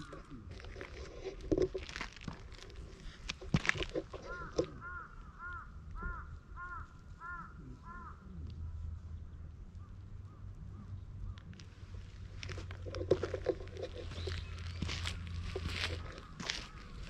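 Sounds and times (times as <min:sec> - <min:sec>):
crow cawing: 0:04.1 - 0:08.3, 0:14.8 - 0:17.0.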